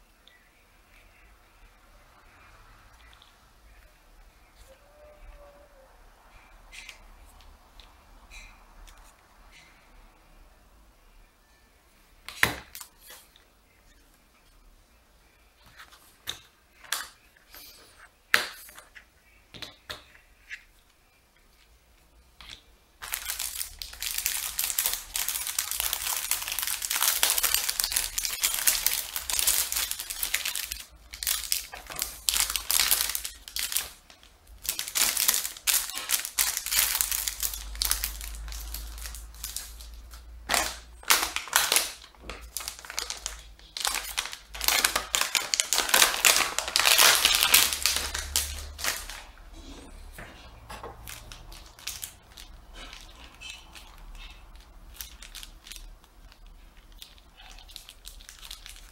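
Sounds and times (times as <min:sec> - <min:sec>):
plastic packaging crinkling: 0:23.0 - 0:49.5, 0:50.8 - 0:58.9.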